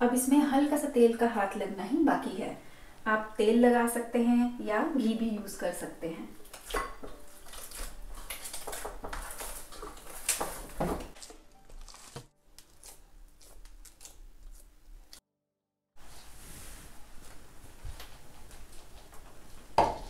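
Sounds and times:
hand kneading dough in metal bowl: 6.5 - 12.3.

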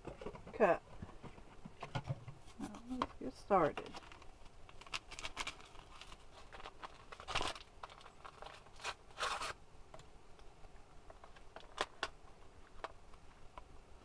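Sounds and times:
paper packet crinkling: 2.5 - 9.6
paper packet ripping: 3.8 - 9.6.

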